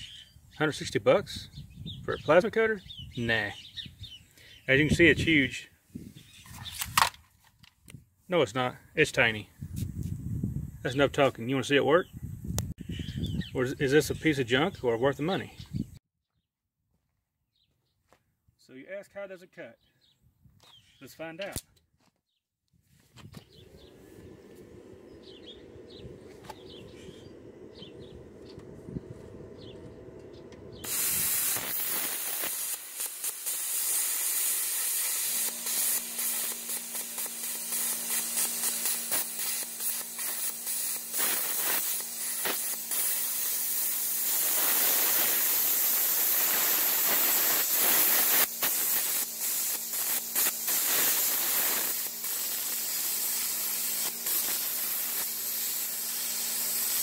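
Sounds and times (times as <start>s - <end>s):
low hum: 23.4s - 31.2s
plasma cutter arc hissing: 23.5s - 28.6s, 29.5s - 57.0s.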